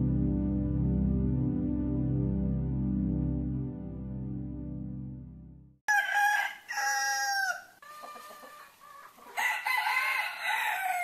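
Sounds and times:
background music: 0.0s - 5.8s
roosters crowing: 5.9s - 11.0s.

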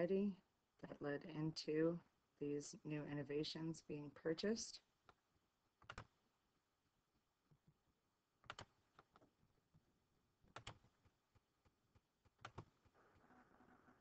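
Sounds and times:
computer mouse clicks: 5.8s - 6.1s, 12.2s - 13.0s.

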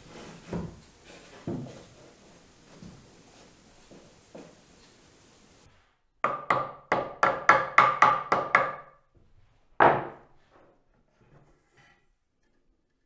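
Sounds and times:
hammer knocking on wood: 6.2s - 8.8s, 9.8s - 10.2s.

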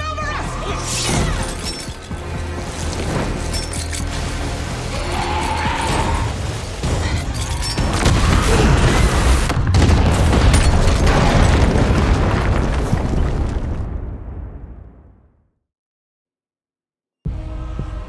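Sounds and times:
dramatic score music: 0.0s - 9.9s, 17.3s - 18.0s
fireball explosion rumble: 8.1s - 15.4s.

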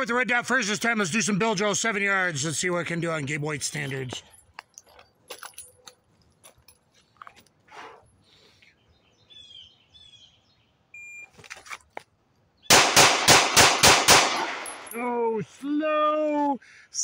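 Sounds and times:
birds chirping: 8.2s - 11.0s
pistol shots: 12.7s - 15.0s.

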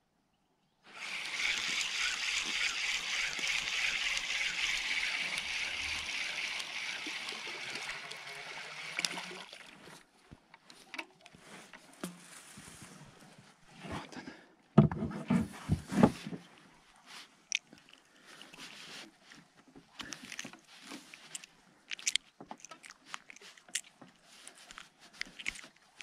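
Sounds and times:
spinning reel cranked fast: 0.9s - 9.3s
small water splashes: 0.9s - 10.1s
small clicks: 1.0s - 9.3s, 20.0s - 26.0s.

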